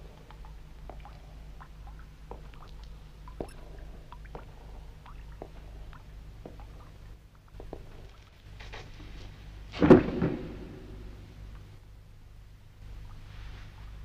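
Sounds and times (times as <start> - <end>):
steady low hum: 0.0 - 14.0
small pitched plinks and plops: 0.2 - 8.4.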